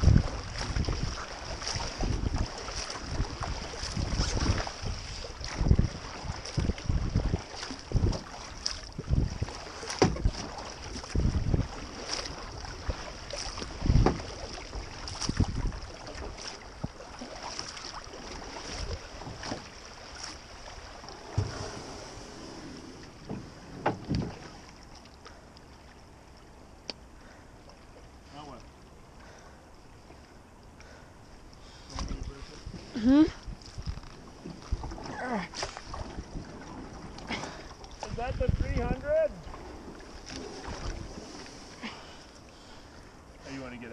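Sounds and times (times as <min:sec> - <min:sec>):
wind on microphone: 0:00.0 - 0:17.1, 0:21.0 - 0:24.6, 0:32.0 - 0:35.2, 0:35.8 - 0:41.7
paddle splashing in water: 0:00.0 - 0:43.8.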